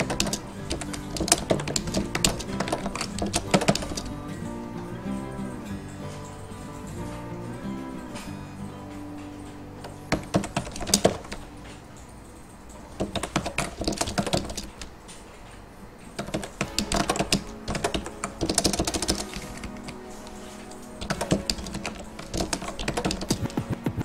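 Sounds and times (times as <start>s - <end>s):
typing on keyboard: 0.0s - 4.4s, 9.2s - 15.3s, 16.1s - 24.0s
soft background music: 0.0s - 24.0s.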